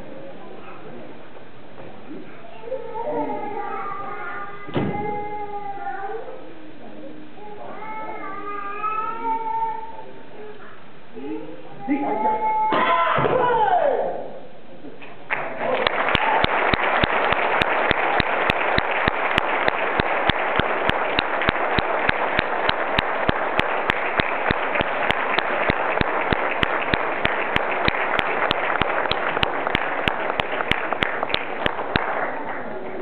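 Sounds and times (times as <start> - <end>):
nearby person clapping sharply: 15.3 - 32.7
audience applauding: 15.3 - 33.0.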